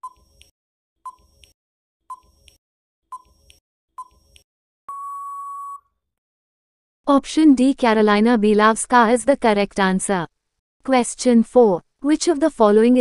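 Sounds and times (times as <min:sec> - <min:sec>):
timer ticks with pings: 0:01.1 - 0:05.8
long steady beep: 0:04.9 - 0:05.9.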